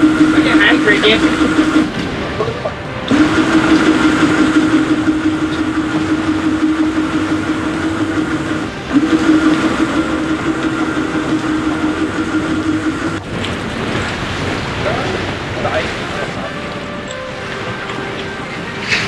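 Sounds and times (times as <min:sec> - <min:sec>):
electric fishing reel motor whining: 0:03.1 - 0:13.2.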